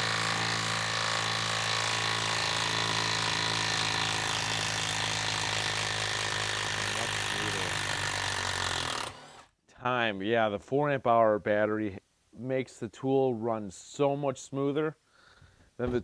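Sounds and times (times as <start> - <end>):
impact wrench hammering: 0.0 - 9.3.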